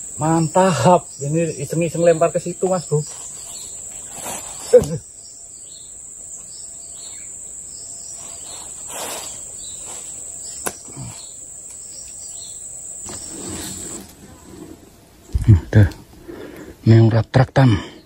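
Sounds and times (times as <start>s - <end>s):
forest insects droning: 0.0s - 18.0s
faint rustles: 2.9s - 5.1s, 7.9s - 12.2s.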